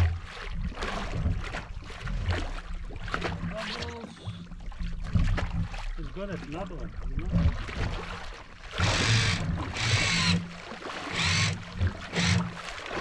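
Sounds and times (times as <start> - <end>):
outboard motor running: 3.2 - 13.0
rushing propeller wash: 8.7 - 13.0.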